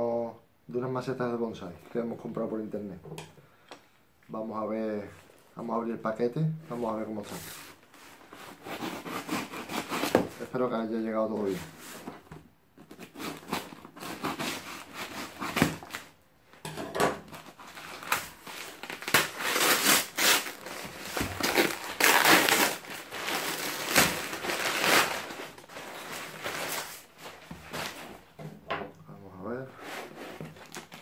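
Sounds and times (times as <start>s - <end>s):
paper rustling and crinkling: 17.3s - 28.4s, 29.8s - 31.0s.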